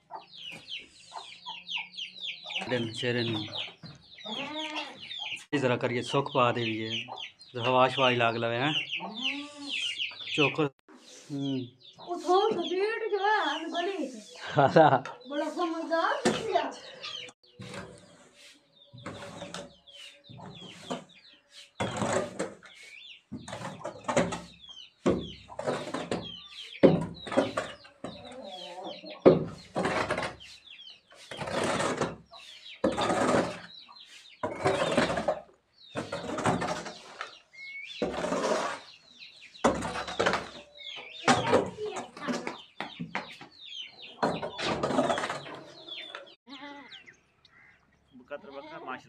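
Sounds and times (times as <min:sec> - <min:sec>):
hoe scraping dirt floor: 0:17.4 - 0:42.6, 0:44.4 - 0:46.3.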